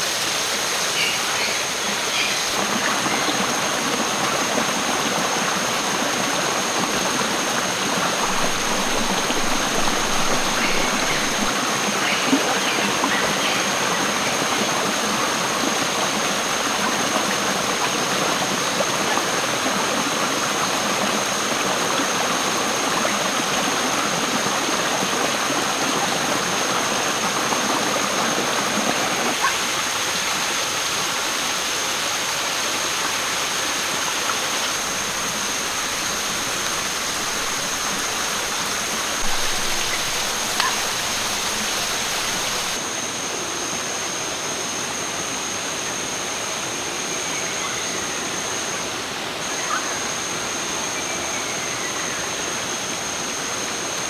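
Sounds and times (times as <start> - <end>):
stream babbling over rocks: 0.0 - 43.2.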